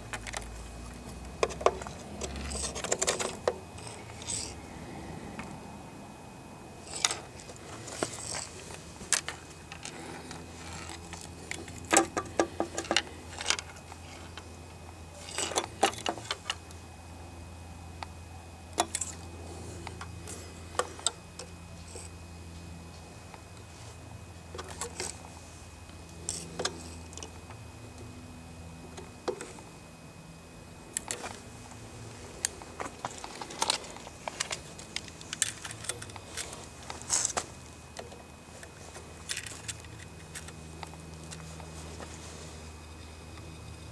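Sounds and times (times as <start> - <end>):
faint low hum: 0.0 - 43.9
tape measure clicks and rattles: 1.4 - 4.6.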